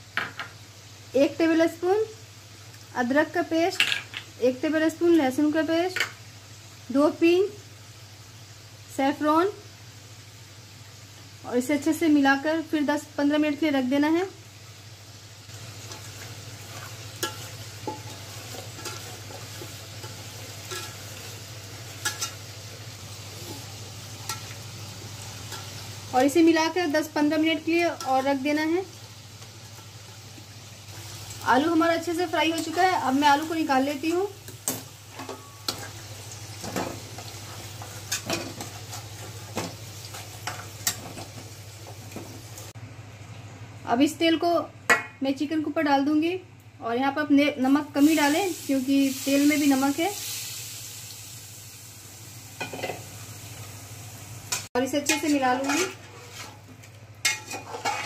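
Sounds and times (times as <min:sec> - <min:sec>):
potatoes sizzling in oil: 0:00.0 - 0:42.8, 0:47.2 - 0:58.0
metal spatula clinking: 0:17.2 - 0:18.2, 0:20.0 - 0:21.0, 0:55.1 - 0:56.5, 0:57.2 - 0:58.0.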